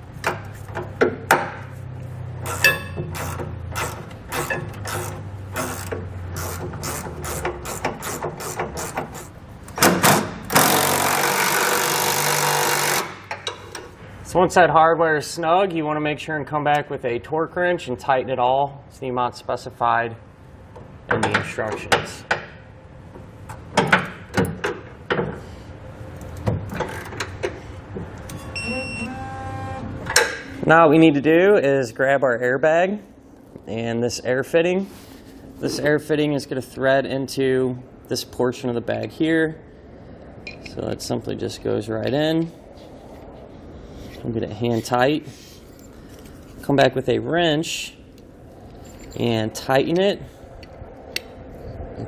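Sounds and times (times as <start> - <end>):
torque wrench ratcheting: 2.4 - 9.4, 10.4 - 13.3
cordless impact driver running: 10.5 - 13.2.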